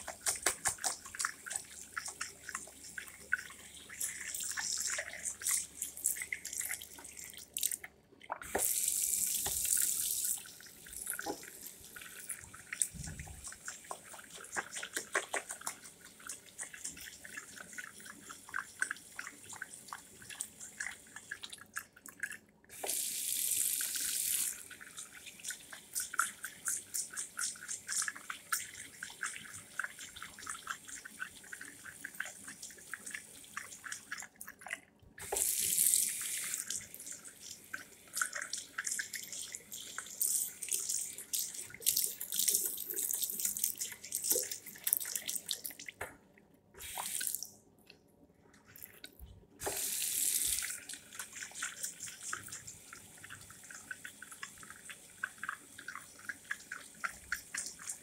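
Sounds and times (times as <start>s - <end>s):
water splashing over hands: 0.0s - 2.2s
tap water running into sink: 0.0s - 21.8s, 22.7s - 34.6s, 35.2s - 46.2s, 48.7s - 58.0s.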